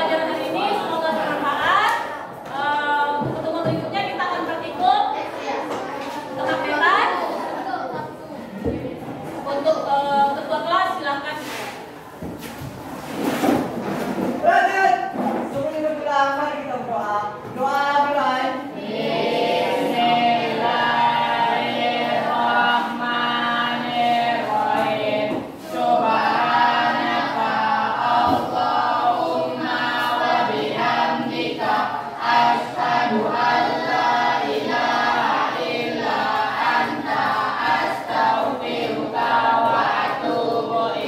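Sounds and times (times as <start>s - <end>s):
group of voices singing: 0.0s - 4.6s, 17.3s - 41.0s.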